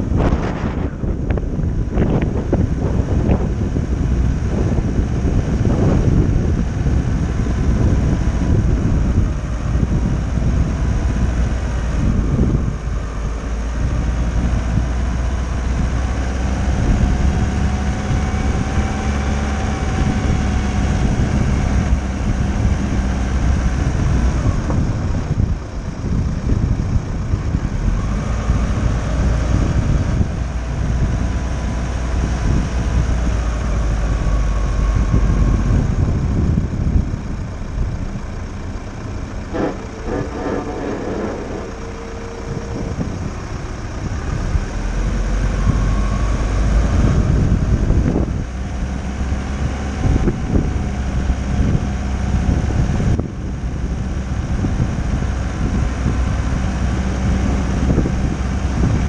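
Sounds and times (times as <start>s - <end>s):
road and engine rumble: 0.0s - 59.0s
wind buffeting microphone: 0.0s - 59.0s.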